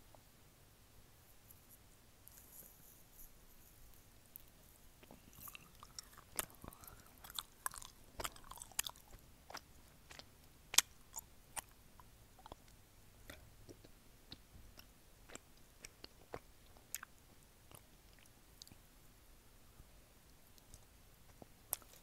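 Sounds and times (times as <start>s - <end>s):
chewing with mouth clicks: 4.4s - 18.8s, 20.6s - 22.0s.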